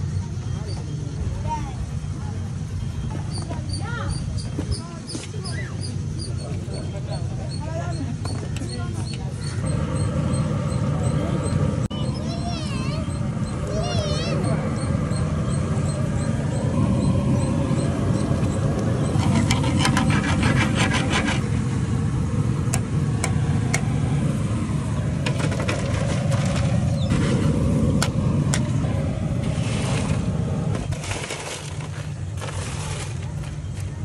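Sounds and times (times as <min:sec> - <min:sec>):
metal spoon scraping a pan: 0:19.1 - 0:21.5.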